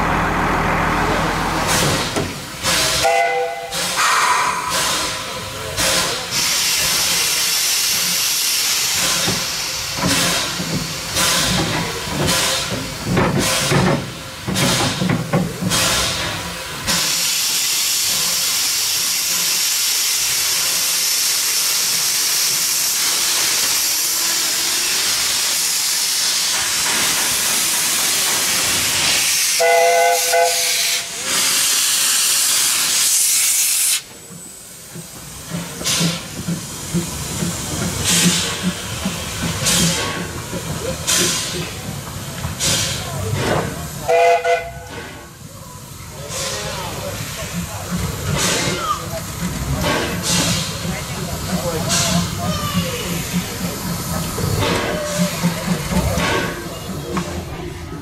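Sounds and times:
steam locomotive bursts of steam: 0:00.0 - 0:58.0
steam hissing: 0:01.0 - 0:58.0
multi-tone steam whistle: 0:03.0 - 0:04.8, 0:29.3 - 0:31.2, 0:44.0 - 0:45.0.

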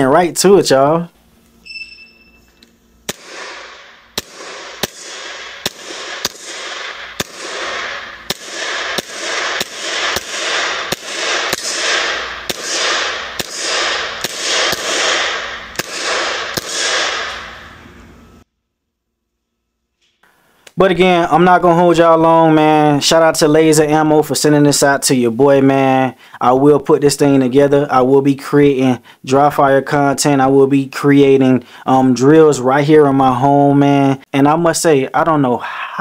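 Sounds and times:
airsoft pistol shots: 0:03.0 - 0:17.6.

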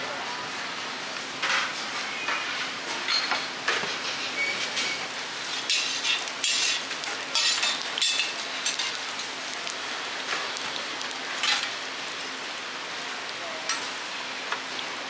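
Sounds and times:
pancakes sizzling in oil: 0:01.1 - 0:15.0
metal spatula scraping pan: 0:05.7 - 0:06.8.

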